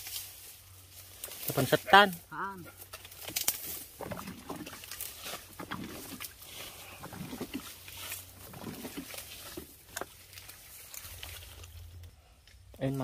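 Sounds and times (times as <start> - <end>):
splashes and drips in stream water: 3.4 - 11.7.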